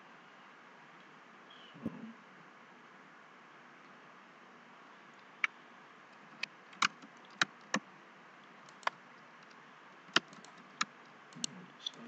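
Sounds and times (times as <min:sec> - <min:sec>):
faint steady hiss: 0:00.0 - 0:12.0
mouse and keyboard clicks: 0:06.2 - 0:07.8, 0:08.7 - 0:12.0.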